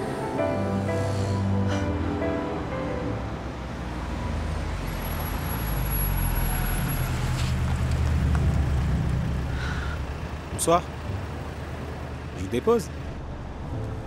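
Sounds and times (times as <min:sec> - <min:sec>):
soft music: 0:00.0 - 0:04.2, 0:13.4 - 0:14.0
car engine and tyres rumbling: 0:00.0 - 0:14.0.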